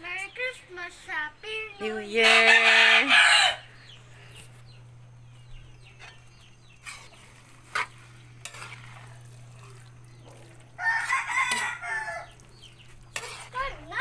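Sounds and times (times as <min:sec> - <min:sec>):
rooster crowing: 0:02.2 - 0:03.7, 0:10.8 - 0:12.4
metal spoon stirring spaghetti: 0:05.8 - 0:14.0.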